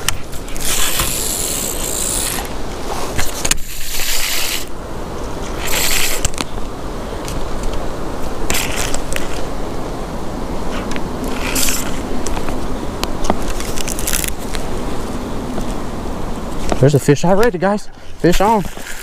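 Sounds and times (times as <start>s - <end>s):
fishing reel gears whirring: 0.0s - 2.6s, 3.6s - 4.7s, 5.6s - 6.3s.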